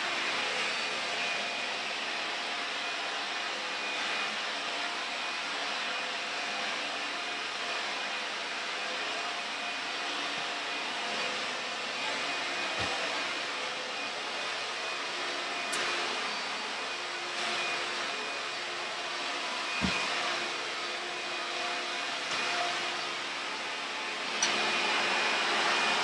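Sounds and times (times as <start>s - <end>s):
vacuum cleaner running: 0.0s - 26.0s.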